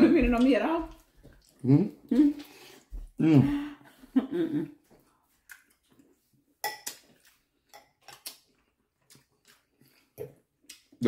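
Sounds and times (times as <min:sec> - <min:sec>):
cutlery clinking against dishes: 0:06.6 - 0:08.3.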